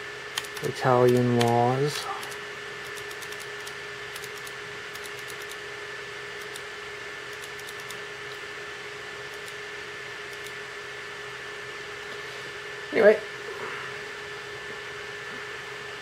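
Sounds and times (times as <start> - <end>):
faint constant hum: 0.0 - 16.0
computer mouse clicking: 0.3 - 1.5, 2.2 - 5.6, 6.4 - 6.6, 7.3 - 8.4, 9.3 - 9.6, 10.3 - 10.6.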